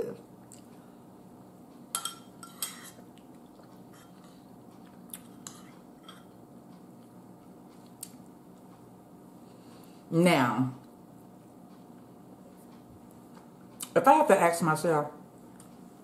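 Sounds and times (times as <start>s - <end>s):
spoon clinking against ceramic bowl: 2.0s - 3.0s.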